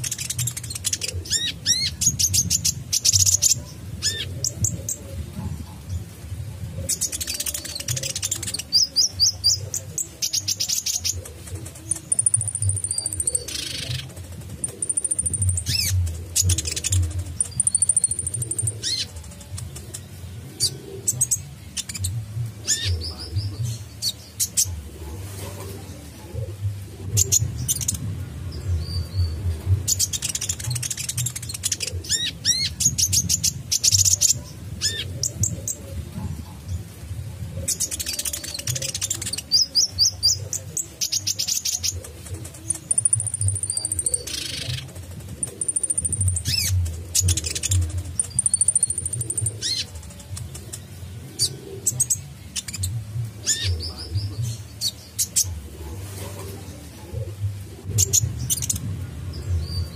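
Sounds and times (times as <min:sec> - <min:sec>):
bird chirps and trills: 0:00.0 - 0:06.1, 0:06.8 - 0:35.8, 0:37.6 - 0:59.9.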